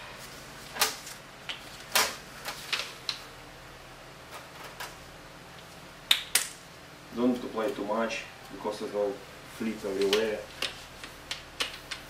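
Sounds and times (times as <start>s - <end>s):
handling clicks and scuffs: 9.9s - 12.0s.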